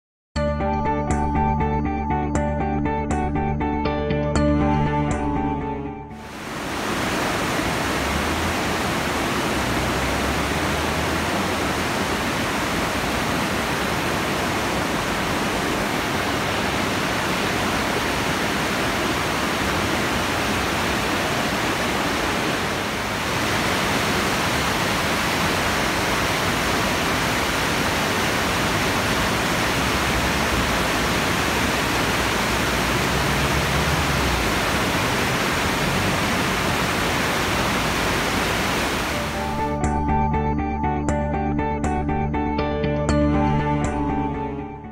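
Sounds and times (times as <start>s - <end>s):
river water rushing over weirs: 6.2s - 39.8s.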